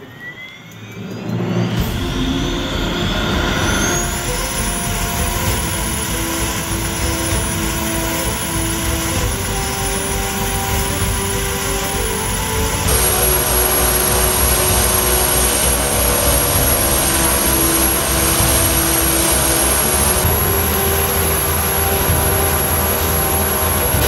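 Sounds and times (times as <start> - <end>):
turboprop engines running: 0.0 - 24.0.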